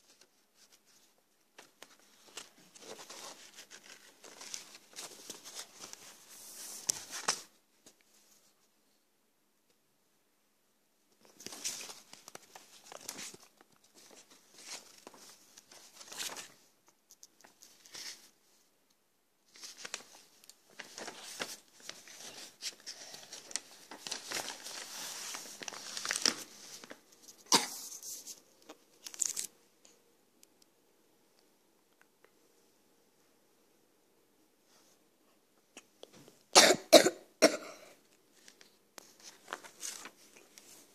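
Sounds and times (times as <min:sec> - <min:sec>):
paper rustling and crinkling: 0:00.0 - 0:08.6, 0:11.2 - 0:18.6, 0:19.4 - 0:29.6, 0:38.1 - 0:40.9.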